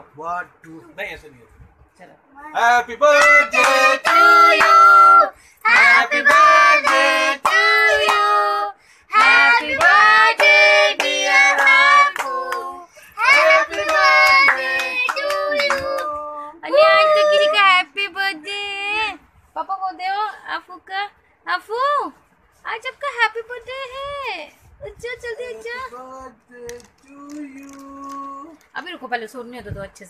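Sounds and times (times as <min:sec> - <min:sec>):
high-pitched singing voice: 0:02.5 - 0:17.6.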